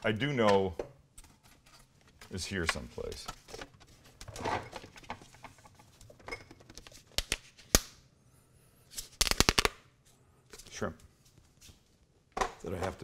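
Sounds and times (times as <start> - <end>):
plastic containers rustling and knocking: 0.2 - 7.1.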